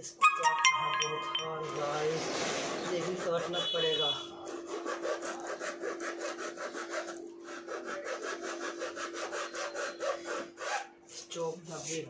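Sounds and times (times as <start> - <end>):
blade sawing through paper tube: 2.7 - 12.0.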